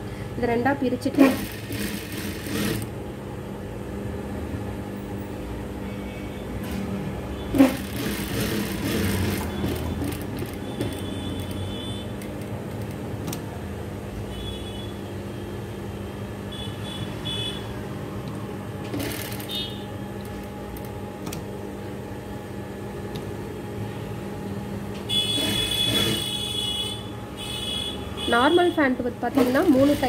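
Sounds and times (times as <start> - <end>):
sewing machine running: 1.2 - 2.9, 7.5 - 11.6, 18.9 - 19.7, 25.3 - 26.3, 29.3 - 30.0.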